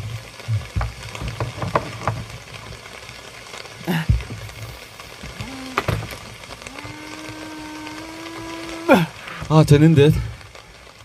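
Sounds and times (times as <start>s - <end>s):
small electric motor humming: 5.2s - 9.1s.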